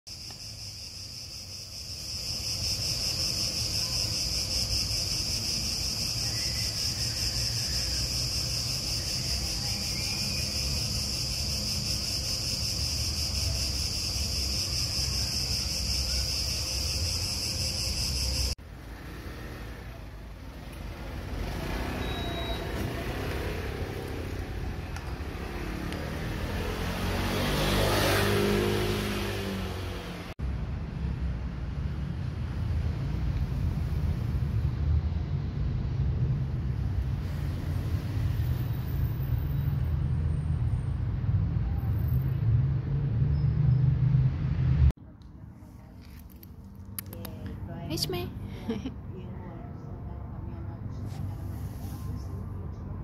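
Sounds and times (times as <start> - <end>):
crickets chirping: 0.1 - 18.6, 21.3 - 30.2
low traffic rumble: 0.2 - 53.0.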